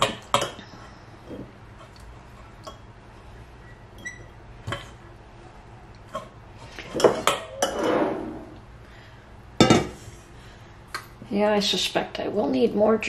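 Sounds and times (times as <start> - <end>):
rustling and scraping: 6.1 - 8.6.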